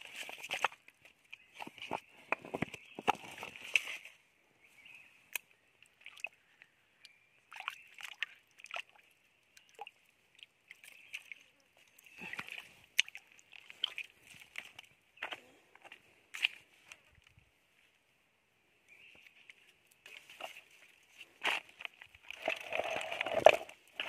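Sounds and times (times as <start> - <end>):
water sloshing and splashing: 0.0 - 2.0, 7.5 - 15.4, 19.3 - 24.0.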